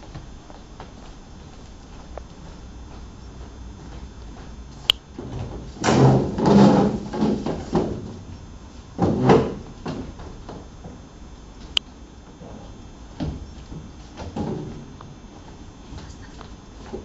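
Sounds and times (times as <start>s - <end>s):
furniture clattering and scraping: 5.1s - 8.3s, 8.9s - 11.0s, 12.4s - 15.0s.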